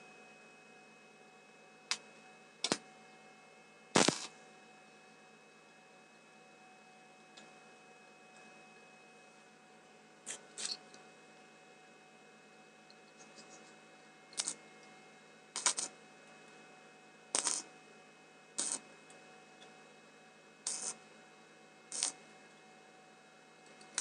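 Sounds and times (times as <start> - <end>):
faint steady hum: 0.0 - 24.0
arc welding crackling bursts: 4.0 - 4.4, 14.3 - 14.6, 15.5 - 16.0, 17.3 - 17.7, 18.6 - 18.9, 20.6 - 21.0, 21.9 - 22.3.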